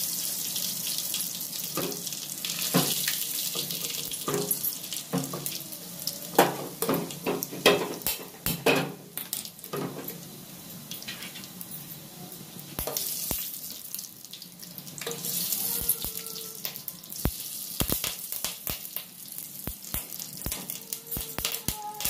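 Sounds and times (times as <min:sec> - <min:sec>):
spices sizzling in hot oil: 0:00.0 - 0:22.0
mustard seeds popping: 0:15.8 - 0:22.0.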